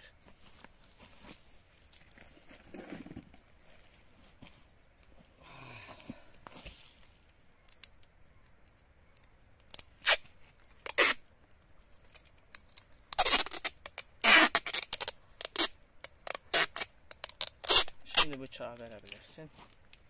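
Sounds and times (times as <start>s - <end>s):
packing tape pulled off roll: 9.6s - 19.3s.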